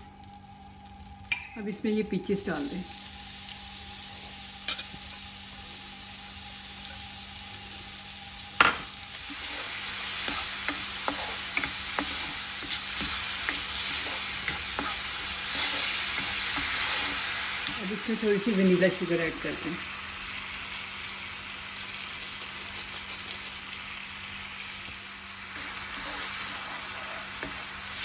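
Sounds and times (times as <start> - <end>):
fruit sizzling in a pan: 0.0 - 28.0
spatula stirring and scraping: 9.2 - 17.9, 25.5 - 28.0.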